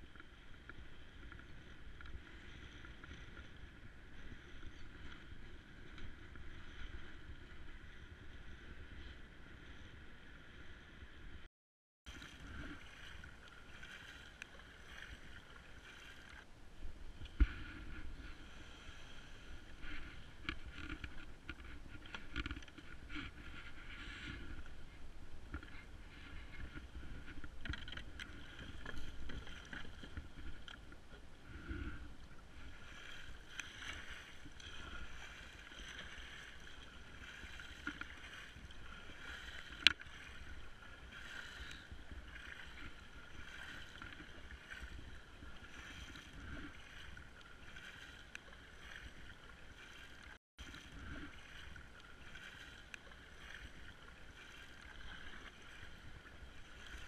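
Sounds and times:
paddle splashing in water: 12.1 - 57.0.

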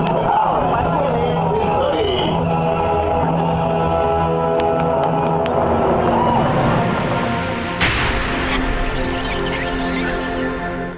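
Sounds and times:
music with held layered tones: 2.3 - 10.9
sudden burst of noise: 5.3 - 10.9.

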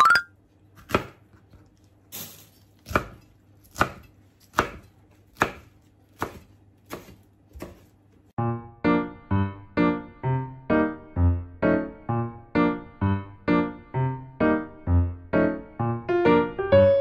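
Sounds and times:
knife chopping on wooden board: 0.8 - 1.6, 2.8 - 8.0.

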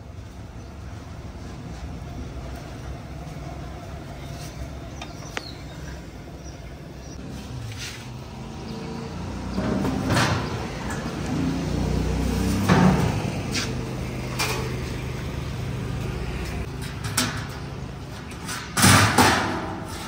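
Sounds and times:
street traffic rumble: 0.0 - 20.0.

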